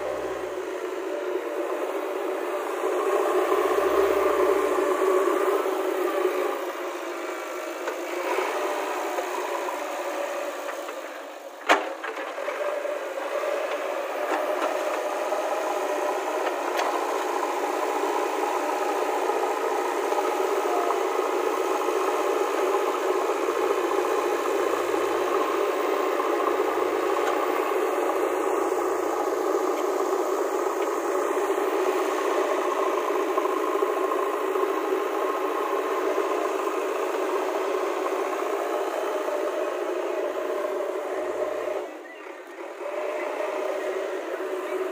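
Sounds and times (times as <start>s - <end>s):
diesel engine running under load: 0.0s - 44.9s.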